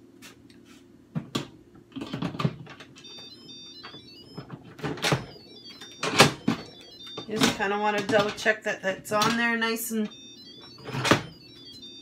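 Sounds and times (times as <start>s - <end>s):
electronic chime tune: 3.0s - 4.4s, 5.1s - 7.8s, 10.1s - 12.0s.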